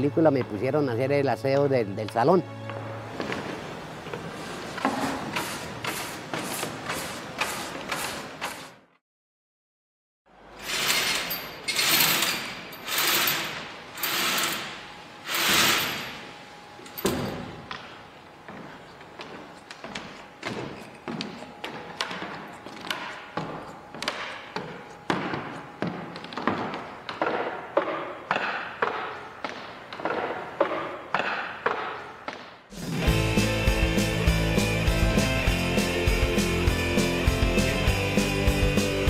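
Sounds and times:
stage curtain rope pulls: 10.6 - 16.2.

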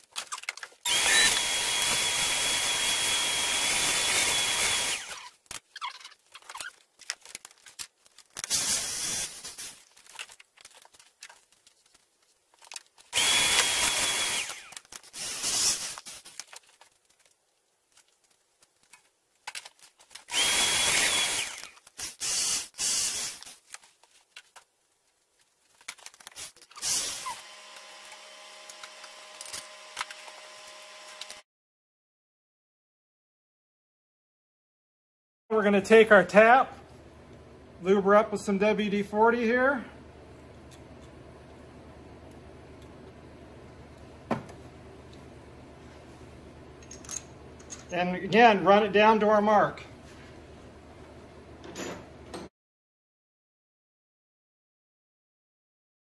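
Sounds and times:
corded drill drilling into metal: 0.8 - 5.4, 8.5 - 9.4, 13.1 - 16.0, 20.3 - 23.5, 26.8 - 31.4.

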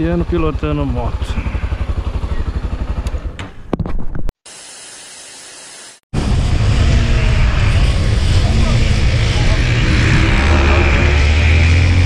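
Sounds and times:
motorcycle engine idling: 0.0 - 3.6
motorcycle engine running: 0.0 - 3.7, 6.2 - 12.0.

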